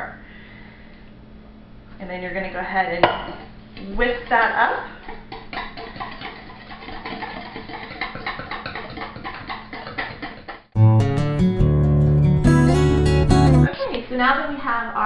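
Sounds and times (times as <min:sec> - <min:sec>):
whisk clicking in bowl: 0:04.2 - 0:10.6
acoustic guitar music: 0:10.8 - 0:13.7.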